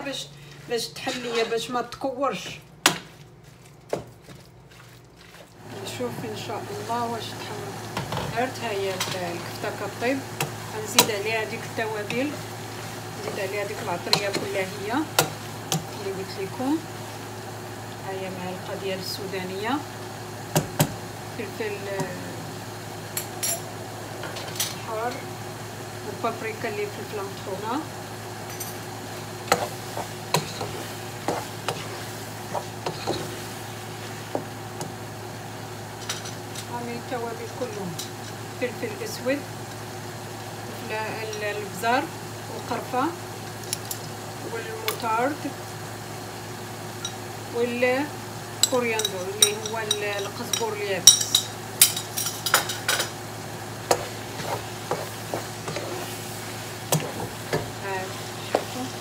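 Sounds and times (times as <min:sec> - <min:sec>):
utensil scraping frying pan: 0:00.6 - 0:02.0, 0:28.5 - 0:35.0, 0:48.6 - 0:59.0
meat sizzling: 0:03.2 - 0:37.0, 0:37.6 - 0:59.0
ground beef frying in a pot: 0:03.2 - 0:59.0.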